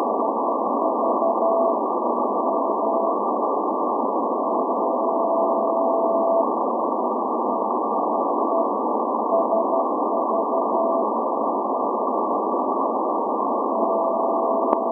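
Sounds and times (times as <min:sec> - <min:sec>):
radio static hiss: 0:00.0 - 0:14.9
morse code tone: 0:00.8 - 0:01.8, 0:04.5 - 0:06.4, 0:09.3 - 0:11.0, 0:13.8 - 0:14.9.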